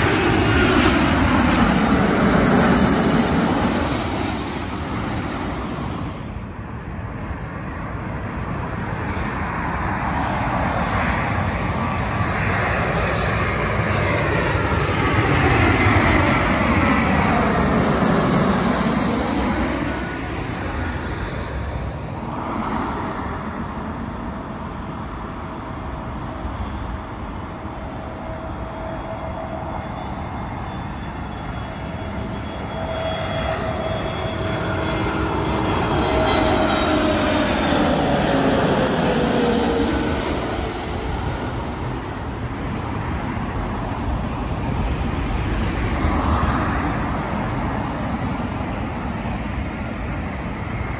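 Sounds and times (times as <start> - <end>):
cars passing: 0.0 - 6.6, 7.9 - 13.9, 15.4 - 28.6
jet airliner passing overhead: 0.0 - 50.9.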